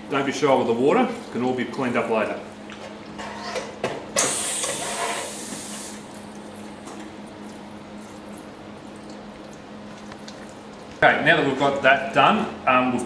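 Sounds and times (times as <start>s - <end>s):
water hissing on hot metal: 4.2s - 6.0s.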